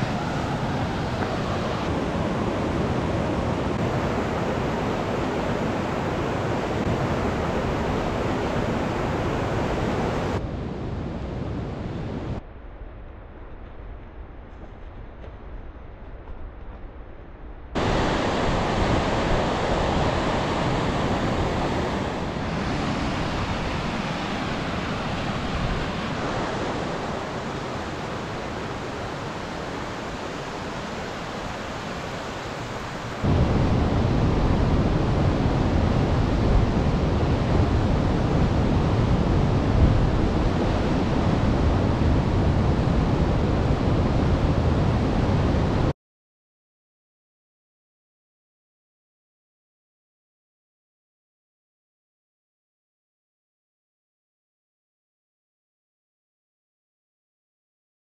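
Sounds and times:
river rushing over rapids: 0.0 - 12.4, 17.8 - 45.9.

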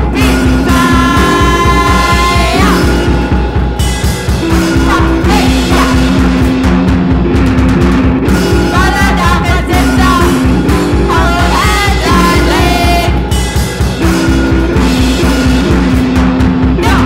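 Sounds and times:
noise-rock guitars and drums: 0.0 - 17.0
bellowed vocals: 0.1 - 3.2, 4.6 - 6.3, 16.8 - 17.0.

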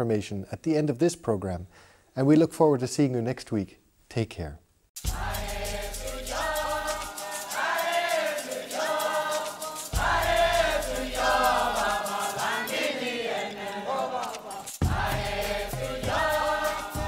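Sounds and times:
choir singing long notes: 5.0 - 17.0.

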